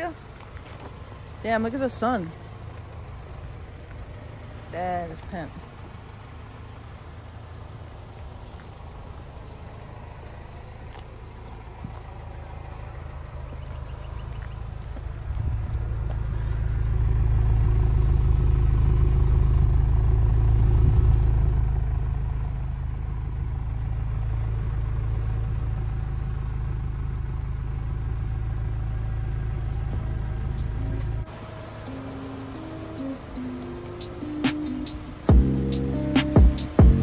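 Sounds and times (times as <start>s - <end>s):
car engine idling: 0.0s - 37.0s.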